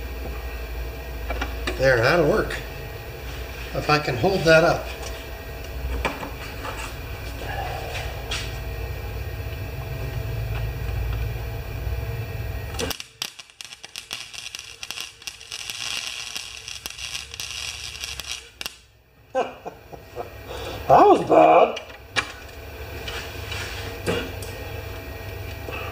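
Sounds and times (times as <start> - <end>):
steady low hum: 0.0 - 25.9
welder arc crackling: 10.2 - 19.0.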